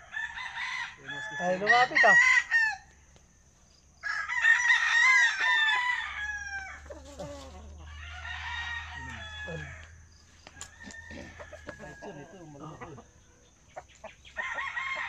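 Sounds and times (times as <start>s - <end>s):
rooster crowing: 0.0s - 3.0s, 3.9s - 15.0s
low rooster calls: 4.0s - 13.1s.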